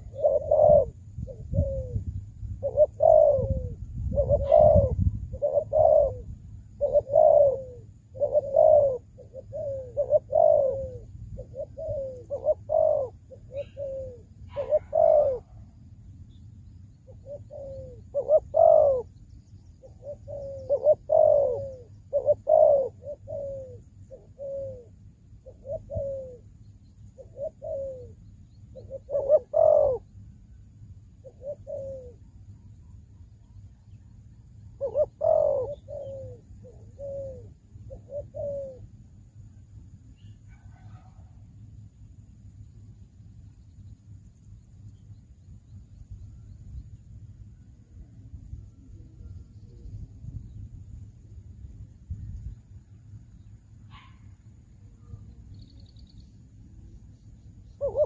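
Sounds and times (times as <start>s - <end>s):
dove cooing: 0.0s - 15.8s, 17.0s - 30.3s, 31.1s - 33.9s, 34.6s - 39.6s, 48.0s - 50.8s, 53.8s - 56.8s, 57.6s - 58.0s.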